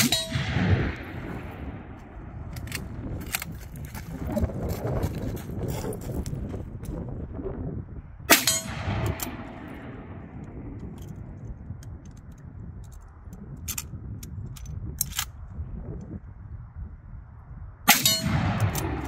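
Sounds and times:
steel target ringing: 0.0 - 0.6, 8.3 - 10.2
rifle shot: 0.0 - 3.5, 8.3 - 11.3, 17.9 - 19.0.

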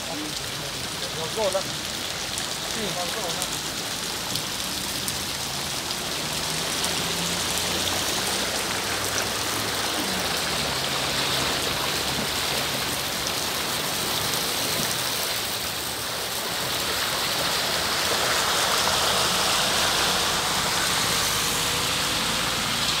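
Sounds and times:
floodwater running through street: 0.0 - 23.0.

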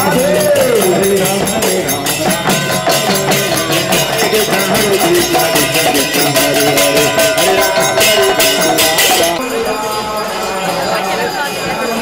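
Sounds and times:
barrel drum: 0.0 - 9.4
lead singer on microphone: 0.0 - 11.6
group chanting devotional song: 0.0 - 12.0
hand cymbals clashing: 0.0 - 12.0.

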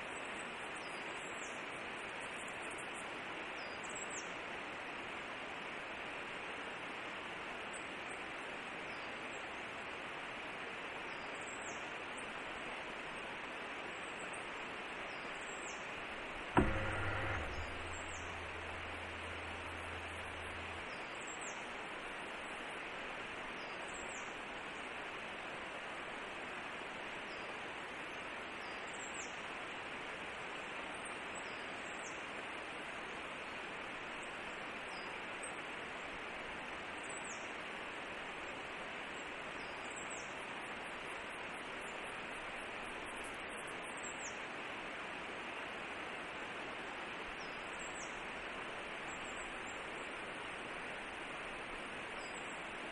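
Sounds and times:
microphone hiss: 0.0 - 52.9
camera motor hum: 16.1 - 21.0
sharp click: 16.2 - 20.9.

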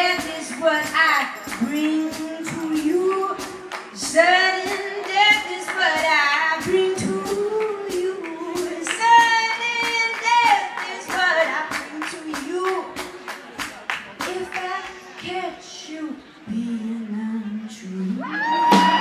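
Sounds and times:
woman singing: 0.0 - 13.1, 14.2 - 19.0
sharp percussive beat: 0.0 - 14.3.

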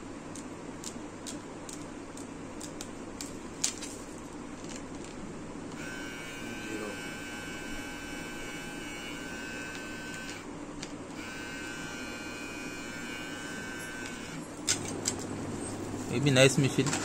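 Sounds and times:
hair trimmer whining: 5.8 - 10.5, 11.1 - 14.5.

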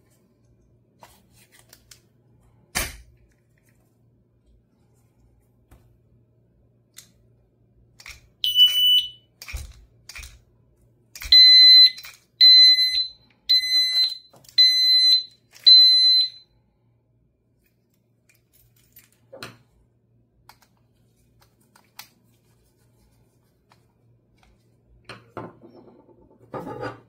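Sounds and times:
electronic alarm beeping: 8.4 - 9.3, 11.3 - 16.4.

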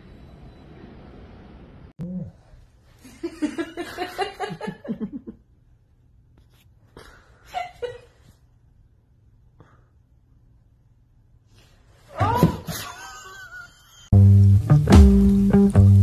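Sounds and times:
person laughing: 12.6 - 14.1.

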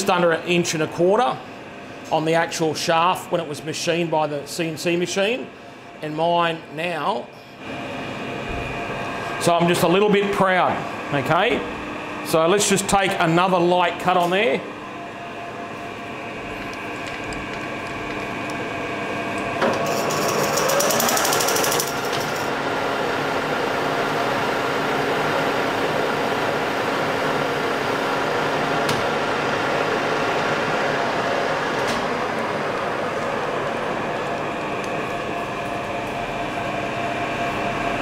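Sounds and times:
lathe gear whine: 14.8 - 38.0.

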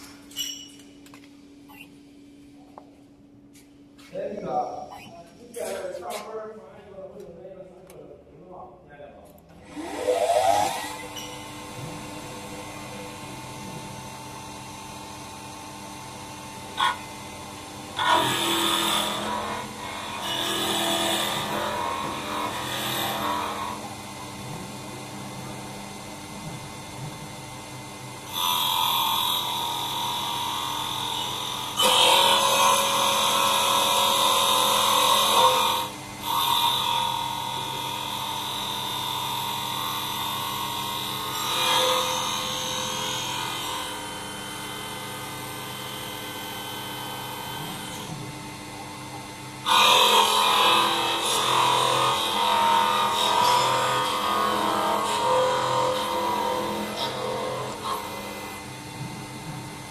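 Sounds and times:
motor hum: 0.0 - 59.9
lathe cutter scraping wood: 9.7 - 25.2, 27.4 - 48.2, 49.3 - 59.4.

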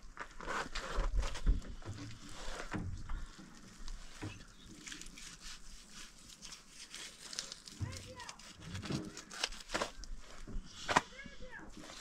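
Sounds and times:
cloth rustling: 2.2 - 11.0, 11.7 - 12.0.

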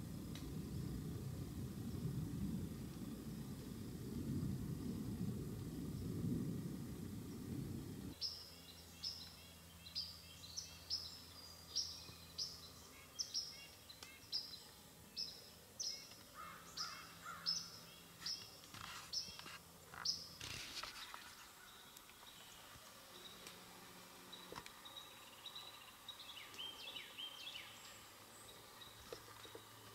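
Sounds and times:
lower bird notes and clicks: 11.0 - 29.9
bird chipping calls: 15.8 - 21.9.

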